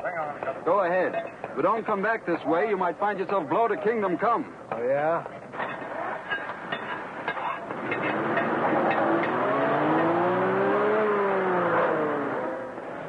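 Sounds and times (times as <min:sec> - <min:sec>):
car engine accelerating: 0:07.7 - 0:13.0.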